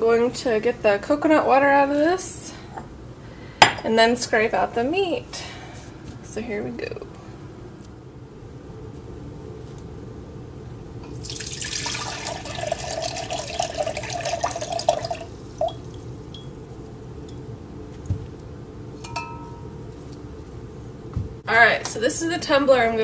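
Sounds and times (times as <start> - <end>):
coconut water pouring: 11.1 - 16.4
drips: 11.1 - 16.6
small clink: 19.0 - 19.6.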